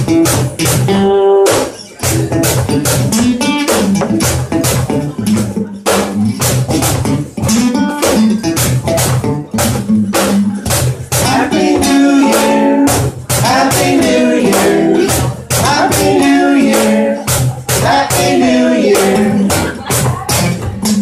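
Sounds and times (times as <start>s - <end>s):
acoustic guitar strumming: 0.0s - 21.0s
man singing: 11.1s - 19.8s.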